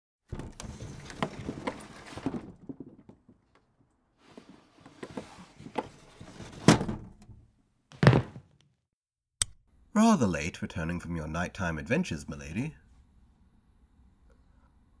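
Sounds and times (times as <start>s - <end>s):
loud thump: 8.0s - 8.5s.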